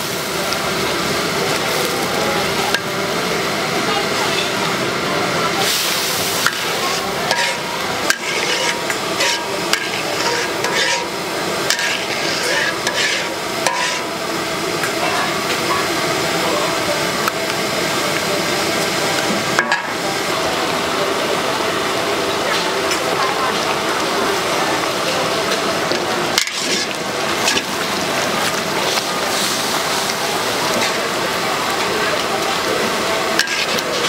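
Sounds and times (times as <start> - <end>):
food sizzling in a pan: 0.0 - 34.0
utensil scraping metal pan: 6.4 - 14.1, 26.3 - 27.7, 33.4 - 34.0.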